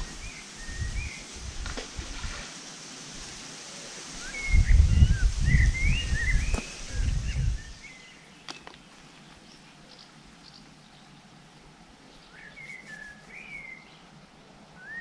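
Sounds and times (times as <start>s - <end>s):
wind buffeting microphone: 0.0s - 2.4s, 4.3s - 7.9s.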